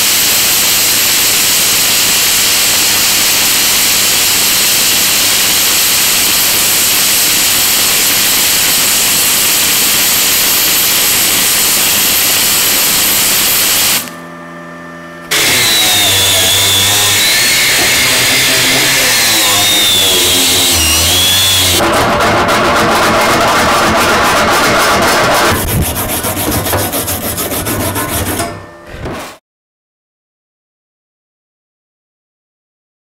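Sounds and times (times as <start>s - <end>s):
welding arc hissing: 0.0s - 14.2s, 15.3s - 21.8s
angle grinder with wire brush: 0.1s - 14.2s, 15.3s - 28.6s.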